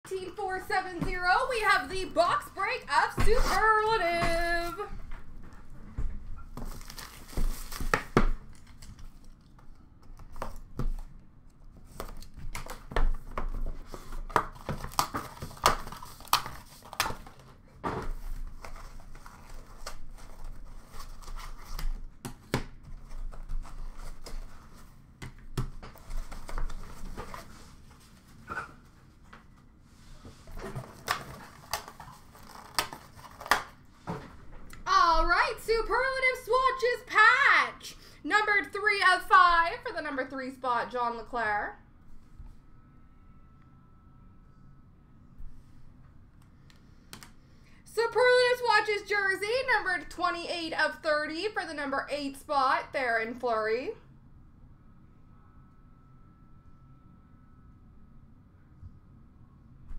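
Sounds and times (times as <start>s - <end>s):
plastic wrapping crinkling: 6.6s - 9.8s, 30.8s - 33.8s.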